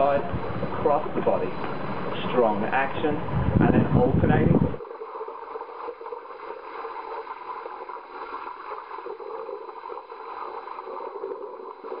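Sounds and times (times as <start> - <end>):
pool water splashing: 4.8 - 12.0.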